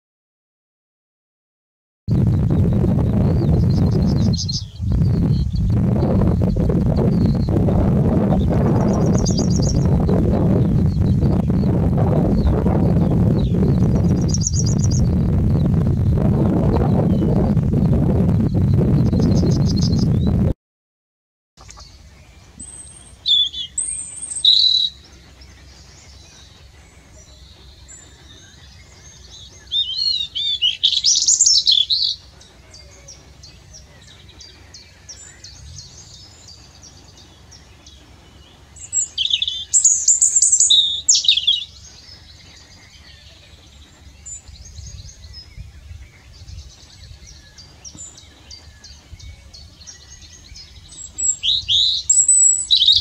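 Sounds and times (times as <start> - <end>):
faint birdsong: 2.1 - 20.5, 21.6 - 53.0
robin singing: 2.4 - 20.4, 21.6 - 53.0.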